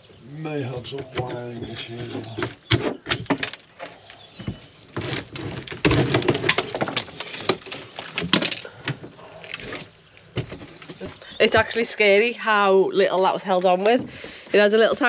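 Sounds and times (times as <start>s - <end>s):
wooden panel cracking and splintering: 2.2s - 11.1s.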